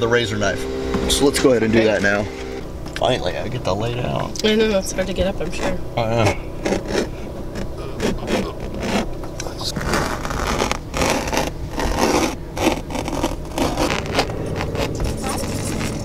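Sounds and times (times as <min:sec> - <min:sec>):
knife slicing through fabric panel: 0:09.8 - 0:14.8.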